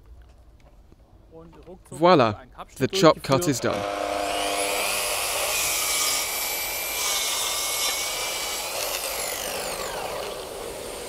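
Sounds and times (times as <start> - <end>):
circular saw whining: 3.4 - 11.0.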